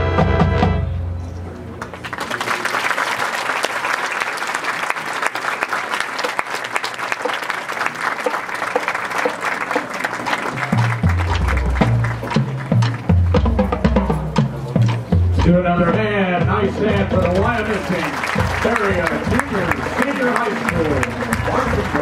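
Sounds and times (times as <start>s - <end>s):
marching band chord: 0.0s - 1.1s, 8.7s - 22.0s
audience applauding: 1.8s - 13.2s, 17.0s - 22.0s.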